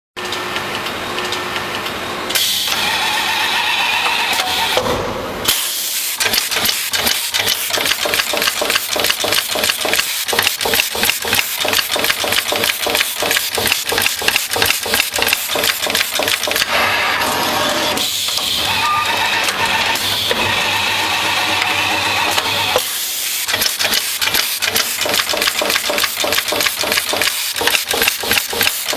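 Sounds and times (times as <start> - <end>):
machine mechanical clacks: 6.2 - 17.3, 17.9 - 28.9.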